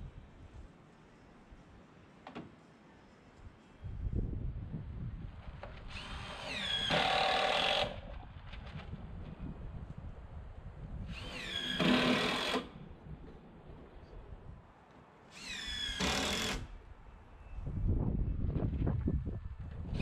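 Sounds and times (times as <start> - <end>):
power drill whining: 5.9 - 8.0, 11.1 - 12.7, 15.4 - 16.7.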